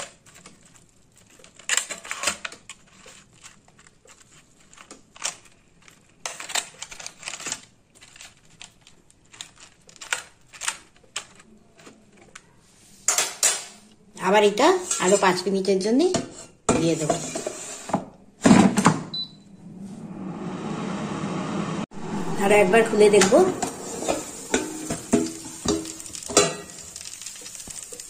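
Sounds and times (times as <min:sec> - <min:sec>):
metal fork scraping air fryer basket: 0:23.0 - 0:28.0.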